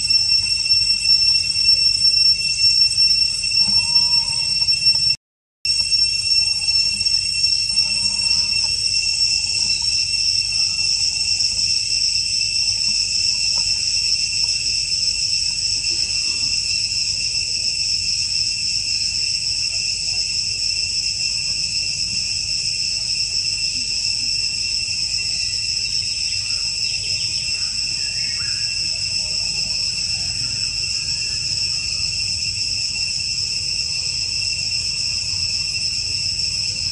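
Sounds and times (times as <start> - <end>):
high-pitched insect chorus: 0.0 - 36.9.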